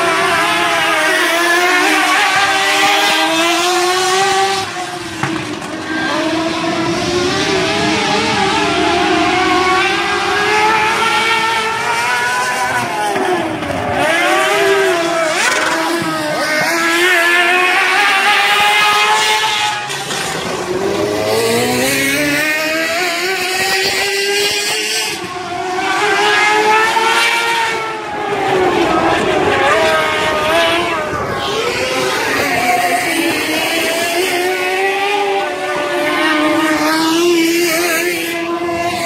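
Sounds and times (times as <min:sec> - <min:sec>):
race car engines passing: 0:00.0 - 0:39.0.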